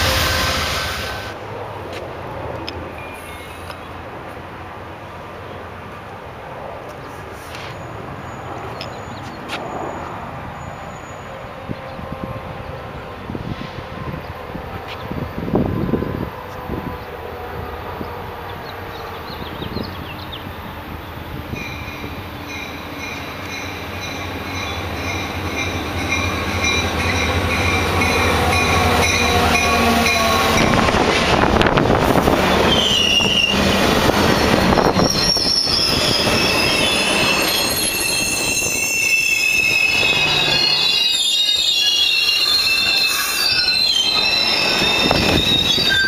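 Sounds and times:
diesel locomotive engine drone: 0.0 - 46.0
train wheel squeal: 3.0 - 3.8, 32.2 - 46.0.

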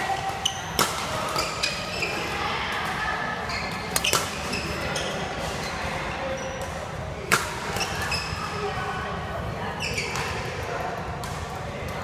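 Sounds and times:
shoes squeaking on court: 3.4 - 6.6, 7.7 - 8.6, 9.8 - 10.4.

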